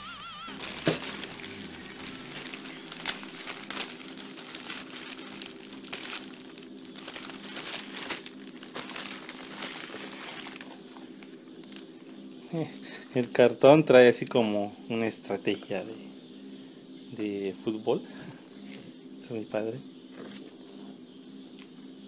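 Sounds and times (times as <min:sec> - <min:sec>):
plastic bag crinkling: 0:00.5 - 0:11.9.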